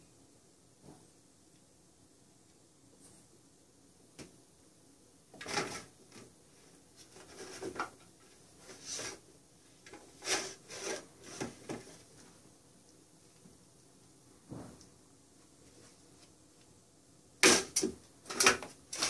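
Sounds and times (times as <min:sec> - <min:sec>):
plastic toy scraping on floor: 0:05.4 - 0:06.0, 0:07.0 - 0:08.0, 0:08.6 - 0:09.2, 0:09.9 - 0:12.0.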